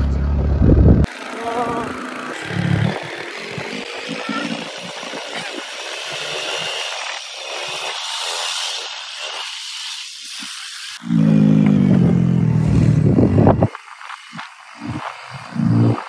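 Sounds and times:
scooter engine running: 0:00.0 - 0:06.8, 0:11.0 - 0:16.0
wind buffeting microphone: 0:00.4 - 0:01.1, 0:12.4 - 0:13.8.

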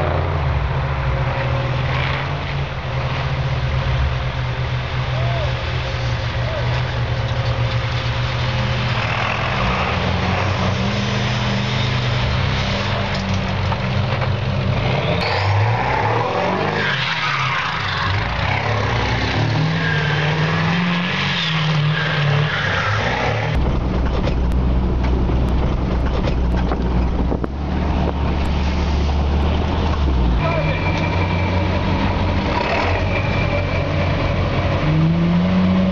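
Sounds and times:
engine revving: 0:08.2 - 0:24.6, 0:25.4 - 0:35.9
low engine drone: 0:22.1 - 0:35.9.

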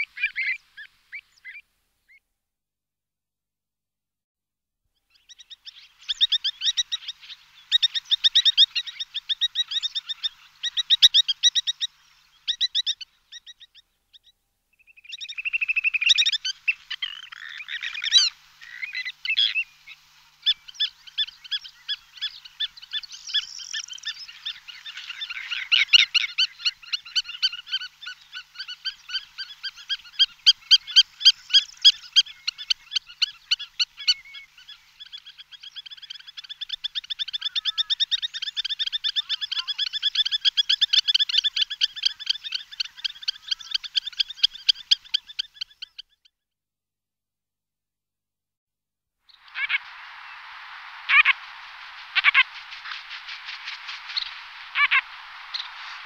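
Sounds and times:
high-pitched squeaking calls: 0:49.3 - 0:56.0.

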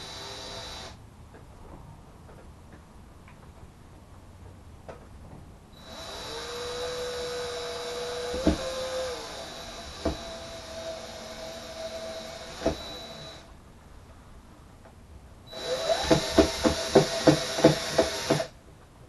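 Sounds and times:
cordless drill whining: 0:00.0 - 0:01.0, 0:05.8 - 0:13.5, 0:15.5 - 0:18.5.

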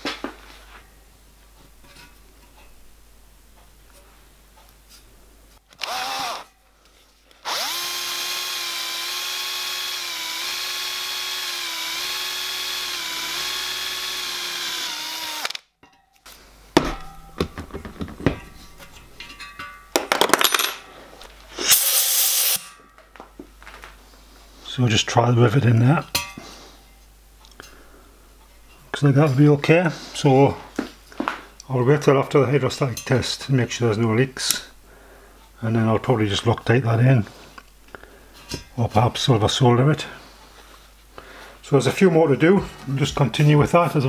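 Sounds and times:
cordless drill whining: 0:05.8 - 0:06.5, 0:07.4 - 0:15.6
metal knocks and clatter: 0:16.8 - 0:20.8.

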